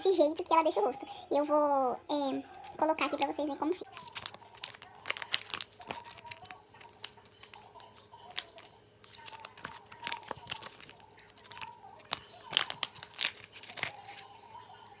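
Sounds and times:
packet crinkling and tearing: 3.8s - 14.9s.

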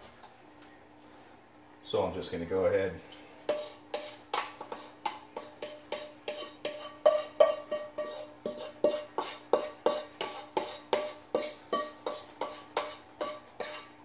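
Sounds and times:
faint steady hum: 0.0s - 14.0s
spatula scraping a wok: 3.4s - 14.0s.

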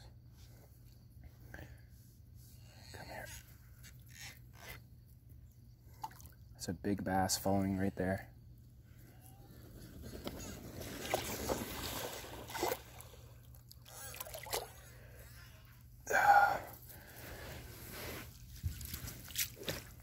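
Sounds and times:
person breathing hard: 14.9s - 18.3s
person gasping: 16.1s - 16.8s.

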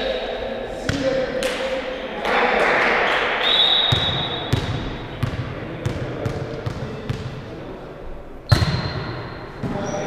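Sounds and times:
ball bouncing on hall floor: 3.9s - 7.4s, 8.5s - 10.0s.

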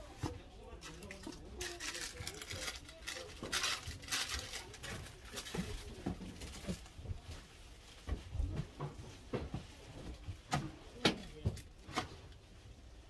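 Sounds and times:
small items knocking and clicking: 0.8s - 6.9s.

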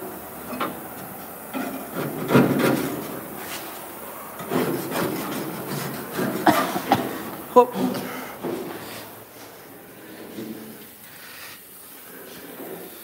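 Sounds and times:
scraping rusted sheet metal: 0.4s - 7.2s.

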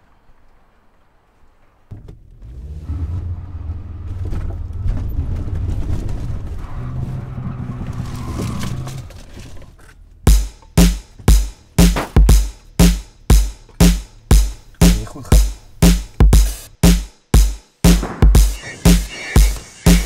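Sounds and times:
electronic drum beat: 10.3s - 20.0s.

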